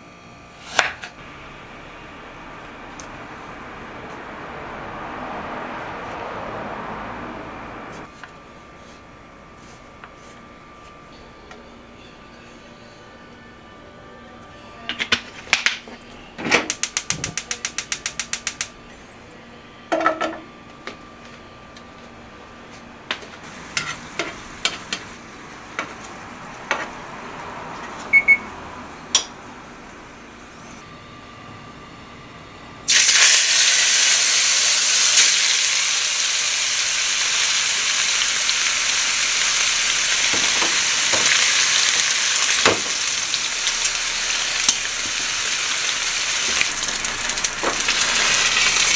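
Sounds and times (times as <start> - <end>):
gas igniter clicking: 16.7 - 18.7
steak sizzling in oil: 32.9 - 48.9.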